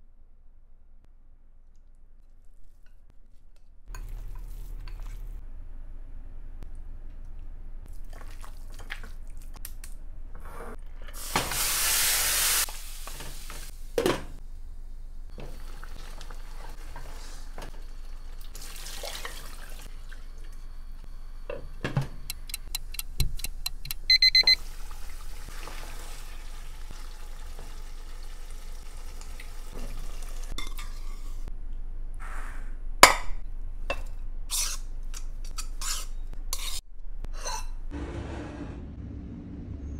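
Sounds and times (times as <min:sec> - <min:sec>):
meat sizzling in a pot: 0:11.2 - 0:13.7, 0:24.6 - 0:31.4
water pouring into a pot: 0:15.5 - 0:16.7, 0:18.3 - 0:20.5, 0:24.6 - 0:30.5
high electronic beeps: 0:24.0 - 0:24.6.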